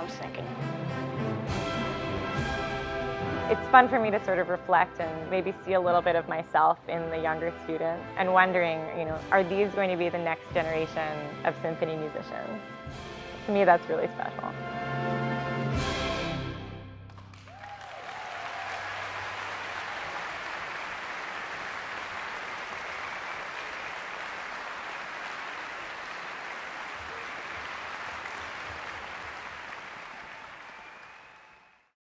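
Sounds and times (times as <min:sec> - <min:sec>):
audience applauding: 0:17.1 - 0:32.0.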